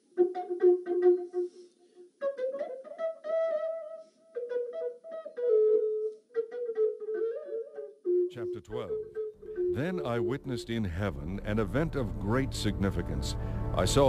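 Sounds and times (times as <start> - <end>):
slow melody of held notes: 9.5 - 14.0.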